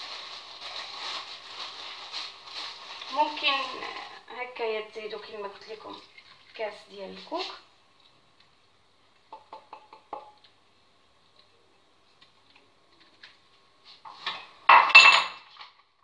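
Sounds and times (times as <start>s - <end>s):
kitchenware clinking and clattering: 14.1s - 15.9s.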